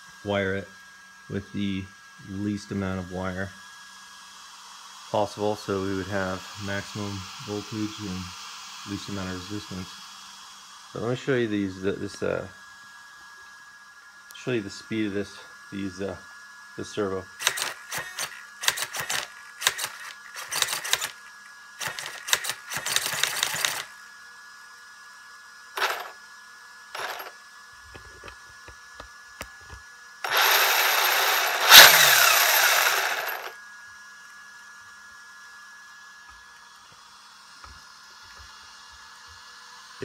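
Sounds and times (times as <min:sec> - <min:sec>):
loud steady whirr: 0:00.0 - 0:40.0
servo buzzing: 0:17.4 - 0:23.9, 0:25.8 - 0:26.2, 0:27.0 - 0:27.4, 0:30.2 - 0:33.6.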